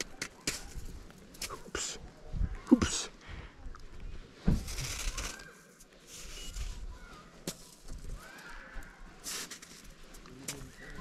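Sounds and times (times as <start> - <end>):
snow crunching and scraping: 4.2 - 11.0.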